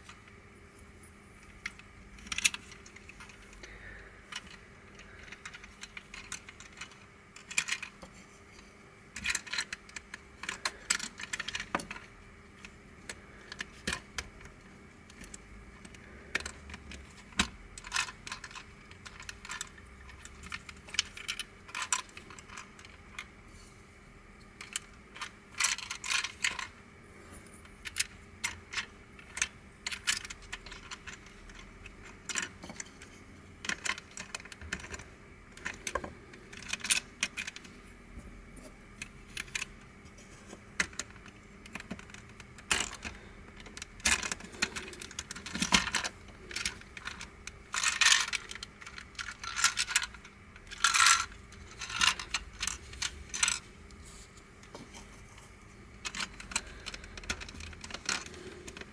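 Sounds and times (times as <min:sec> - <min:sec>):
plastic puzzle pieces clicking: 0:04.3 - 0:08.1, 0:09.2 - 0:12.1, 0:15.1 - 0:23.3, 0:24.6 - 0:26.7, 0:27.8 - 0:32.9, 0:33.6 - 0:37.7, 0:40.8 - 0:53.6.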